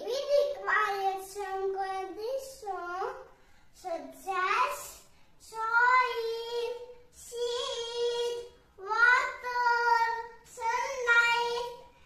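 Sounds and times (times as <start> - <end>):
boy chanting: 3.9 - 11.9.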